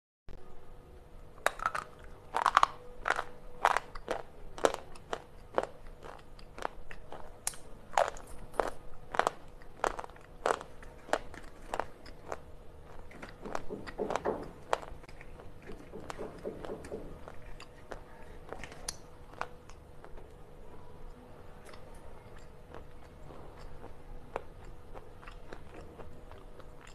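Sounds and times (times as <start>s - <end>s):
slate pencils crunched between teeth: 1.4s - 13.7s.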